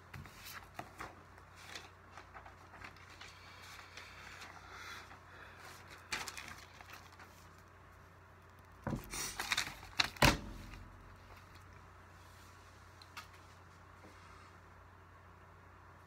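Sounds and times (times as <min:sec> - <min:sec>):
book pages rustling: 0:00.0 - 0:07.8, 0:08.9 - 0:13.8
book knocks and thumps: 0:08.8 - 0:09.2.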